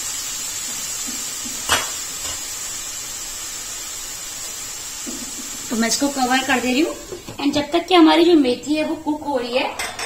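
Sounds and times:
leaves frying hiss: 0:00.0 - 0:09.4
metal ladle clanking on pan: 0:09.8 - 0:10.0.

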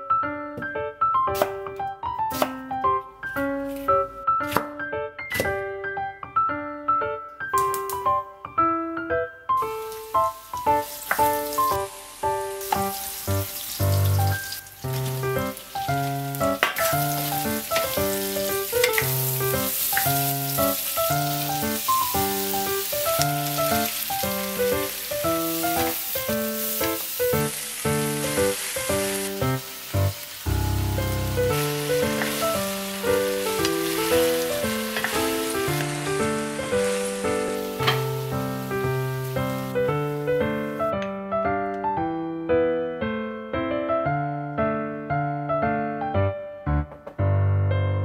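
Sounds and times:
background music: 0:00.0 - 0:47.2
food sizzling in frying pan: 0:09.6 - 0:40.9.

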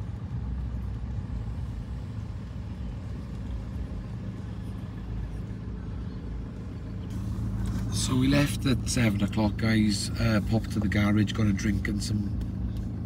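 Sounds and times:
car engine and road noise: 0:00.0 - 0:13.0.

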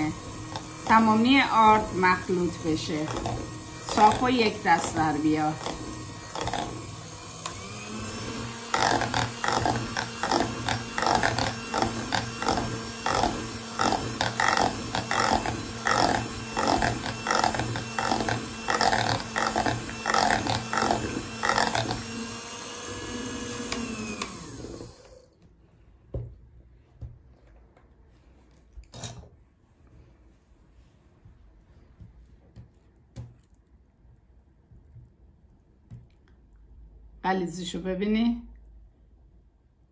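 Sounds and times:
electric hand mixer pulsing: 0:00.0 - 0:25.4.

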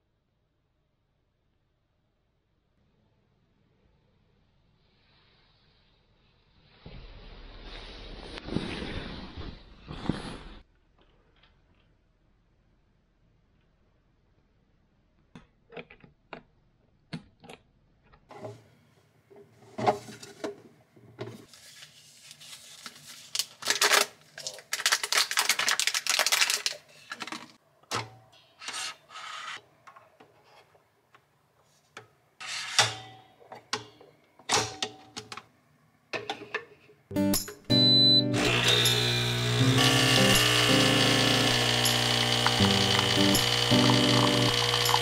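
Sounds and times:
foil wrapper crinkling and tearing: 0:21.6 - 0:27.3
coffee machine humming: 0:38.4 - 0:45.0.

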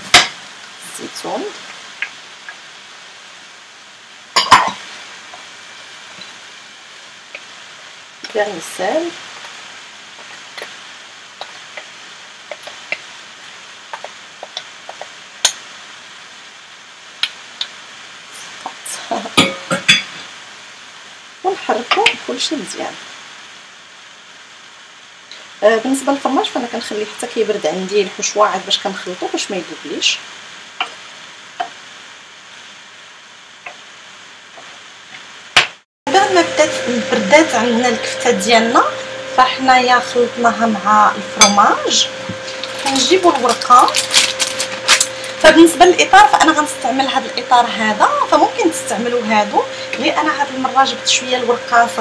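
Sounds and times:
faint steady hiss: 0:00.0 - 0:52.0
light steady sizzle: 0:00.0 - 0:52.0
spoon stirring in a pan: 0:11.4 - 0:15.2.

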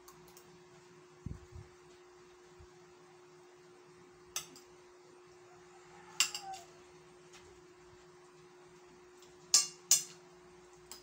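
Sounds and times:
faint steady hum: 0:00.0 - 0:11.0
metal spoon clinking on ceramic plate: 0:06.2 - 0:06.6, 0:09.5 - 0:10.2.

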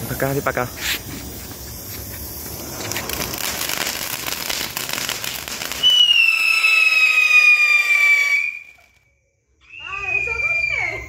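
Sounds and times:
firework spraying sparks: 0:00.0 - 0:09.2
shrill firework whistle: 0:02.5 - 0:11.0.

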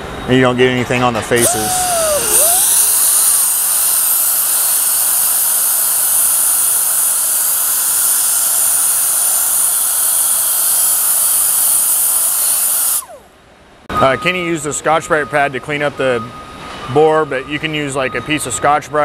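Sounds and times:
die grinder hissing: 0:01.4 - 0:13.3.

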